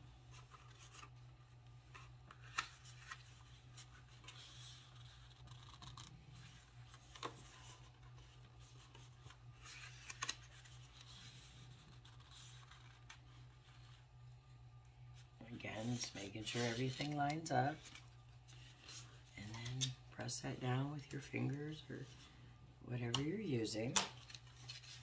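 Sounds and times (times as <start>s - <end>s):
steady low hum: 0.0s - 25.0s
paper rubbing and scraping: 2.0s - 14.0s, 15.5s - 19.9s.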